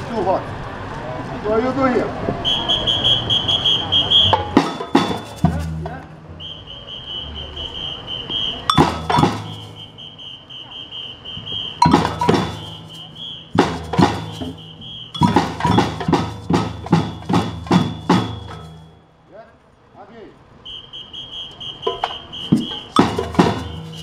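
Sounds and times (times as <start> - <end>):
drum group playing: 4.2 - 6.4, 8.7 - 10.0, 11.8 - 19.0, 21.8 - 24.0.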